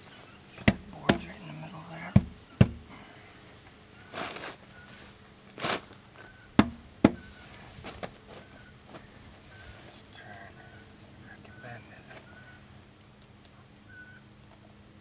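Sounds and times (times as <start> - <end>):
wooden knocks: 2.2 - 2.9, 6.6 - 7.2.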